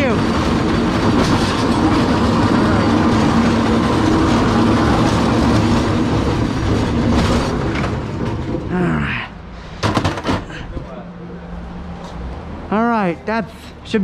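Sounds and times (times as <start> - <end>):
bin wheels rattling on concrete: 0.0 - 9.0.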